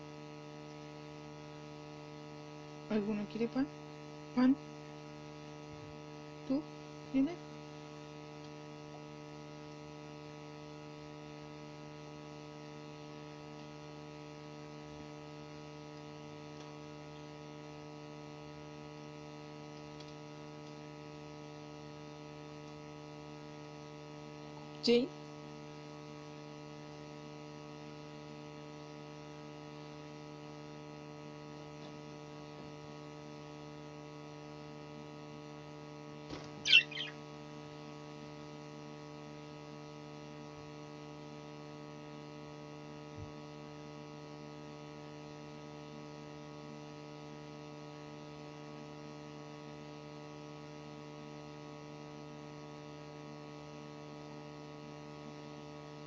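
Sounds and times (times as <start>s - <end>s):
electrical mains hum: 0.0s - 56.0s
budgerigar chirp: 36.6s - 37.2s.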